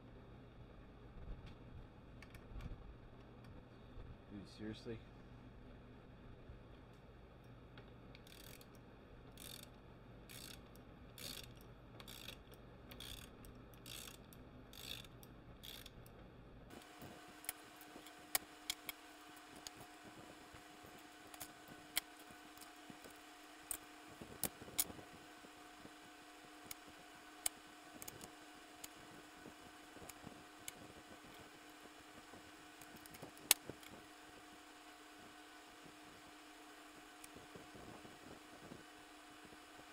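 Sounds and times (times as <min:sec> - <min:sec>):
faint steady hum: 0:00.0 - 0:39.9
ratchet wrench clicking: 0:08.2 - 0:16.0.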